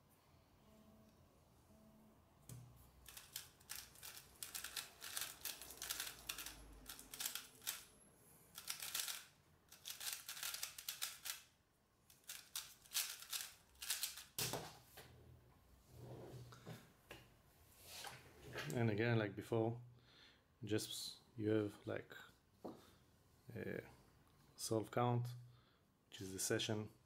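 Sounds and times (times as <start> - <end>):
puzzle cube clicking: 3.0 - 7.9, 8.6 - 11.5, 12.1 - 14.4.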